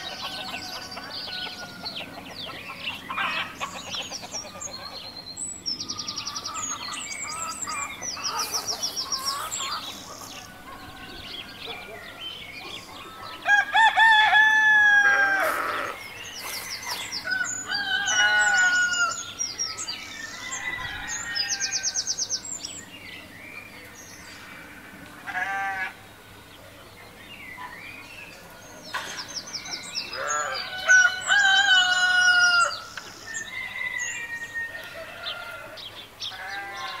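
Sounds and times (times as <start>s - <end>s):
rooster clucking and chirping: 0.0s - 22.1s
rooster crowing: 8.3s - 12.0s, 13.2s - 16.0s, 16.8s - 19.3s, 20.1s - 22.0s, 30.2s - 35.8s.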